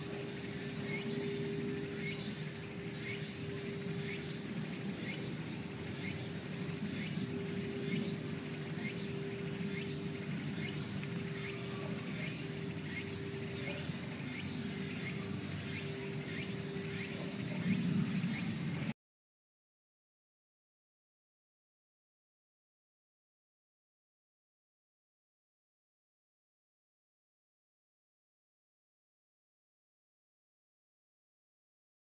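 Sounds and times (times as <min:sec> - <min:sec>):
low hum and rumble: 0:00.0 - 0:19.0.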